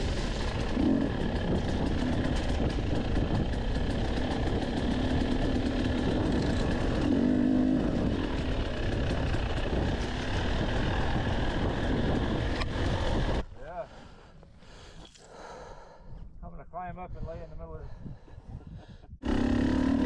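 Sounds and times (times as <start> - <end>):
dirt bike engine running: 0.0 - 13.4, 19.2 - 20.0
wind noise: 0.0 - 13.6, 15.9 - 19.2.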